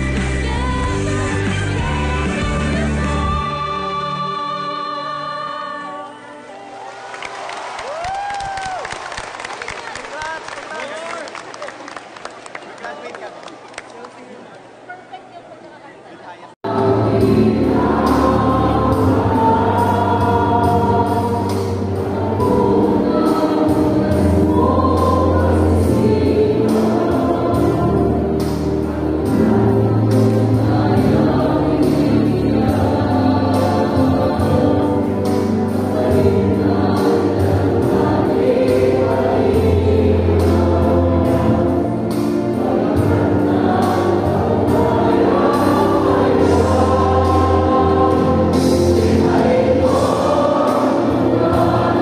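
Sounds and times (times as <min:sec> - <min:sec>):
group singing in unison: 0:00.0 - 0:06.7, 0:16.6 - 0:52.0
instrumental accompaniment: 0:16.7 - 0:52.0.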